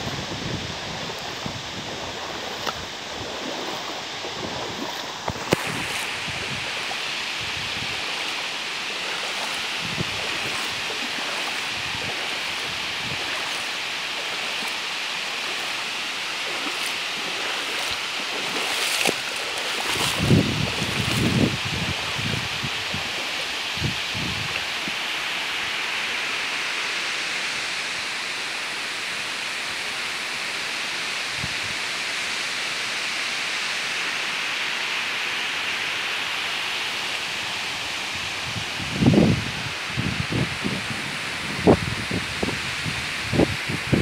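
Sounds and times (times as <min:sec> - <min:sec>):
wind buffeting microphone: 0:00.0 - 0:14.6, 0:16.4 - 0:25.0, 0:38.2 - 0:44.0
water rushing at a dam: 0:00.0 - 0:44.0.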